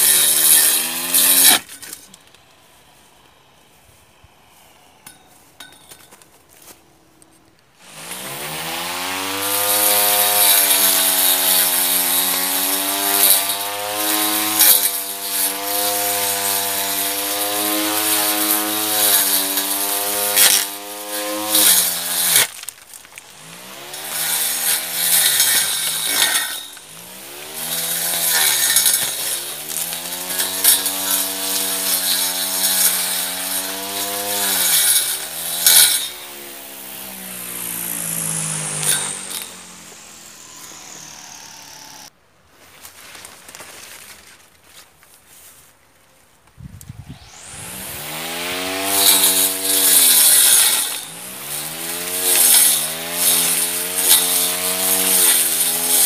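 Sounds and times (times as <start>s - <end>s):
blade hissing through grass: 9.5s - 22.6s, 23.2s - 42.1s, 46.9s - 56.0s
electric motor whining: 23.2s - 42.1s, 47.0s - 56.0s.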